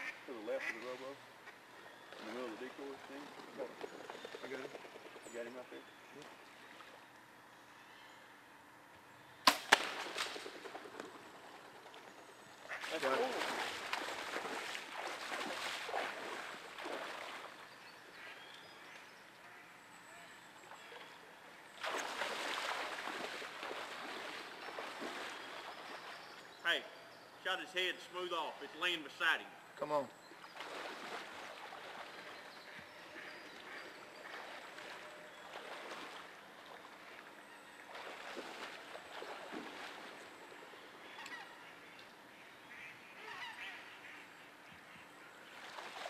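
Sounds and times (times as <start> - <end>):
wading through shallow water: 12.3 - 19.2, 20.5 - 26.6, 30.2 - 42.3, 44.5 - 46.0.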